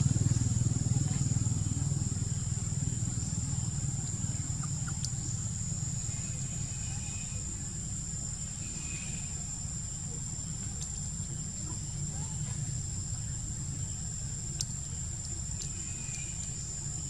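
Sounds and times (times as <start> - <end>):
faint ticks: 4.0 - 5.4, 10.6 - 11.7, 12.4 - 17.0.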